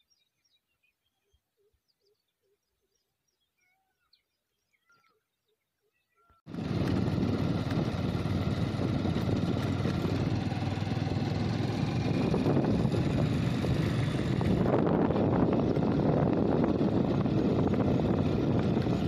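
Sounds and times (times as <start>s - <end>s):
motorcycle engine running: 6.5s - 19.0s
wind on microphone: 6.5s - 19.0s.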